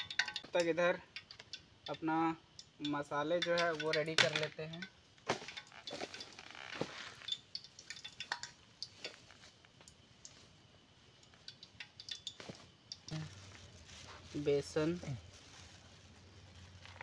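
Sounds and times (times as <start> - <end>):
faint clicks and knocks: 0.0 - 10.4
bags and packets rustling: 5.2 - 7.4, 11.4 - 17.0.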